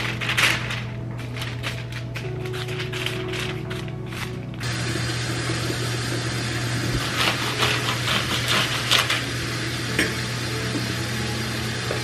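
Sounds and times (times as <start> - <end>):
metal utensil scraping a container: 7.0 - 9.2.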